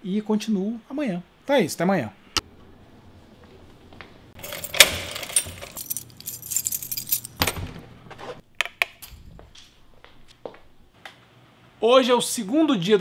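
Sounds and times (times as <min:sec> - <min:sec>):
keys jangling: 0:04.4 - 0:07.6.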